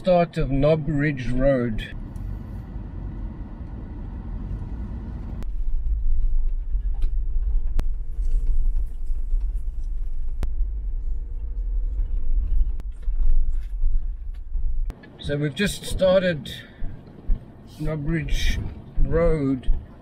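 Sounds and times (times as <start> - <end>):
car driving on gravel: 1.9 - 15.2.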